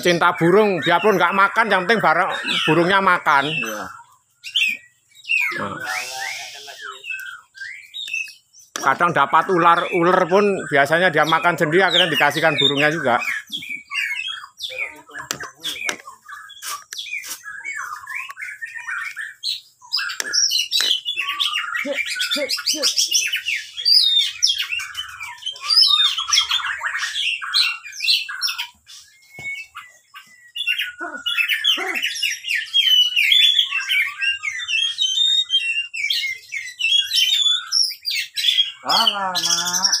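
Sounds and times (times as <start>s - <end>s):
bird chirping and whistling: 0.0s - 40.0s.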